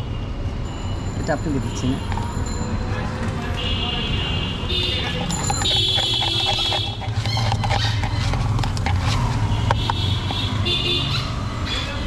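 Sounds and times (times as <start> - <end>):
low traffic rumble: 0.0 - 12.0
high-pitched squealing tone: 4.9 - 8.6.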